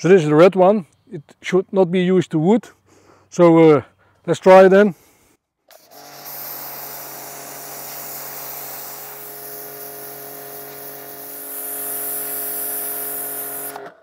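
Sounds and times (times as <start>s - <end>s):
pressure washer motor humming: 5.7s - 14.0s
water jet hissing on wood: 5.9s - 13.7s.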